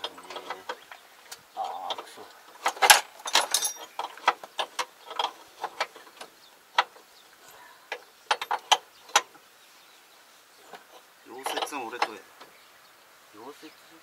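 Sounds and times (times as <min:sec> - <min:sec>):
hand tools clinking on metal: 0:01.6 - 0:06.2, 0:06.8 - 0:09.3, 0:10.7 - 0:12.2.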